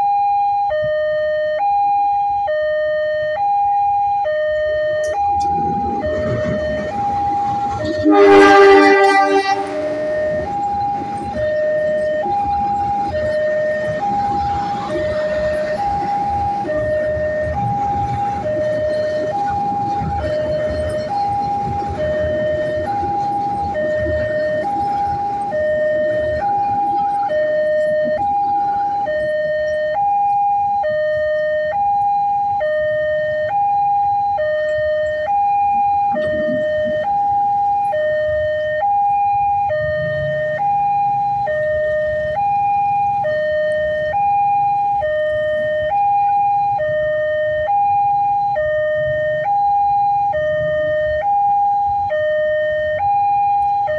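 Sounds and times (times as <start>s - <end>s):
level-crossing two-tone alarm: 0.0s - 53.9s
passenger train rumbling past: 4.6s - 29.3s.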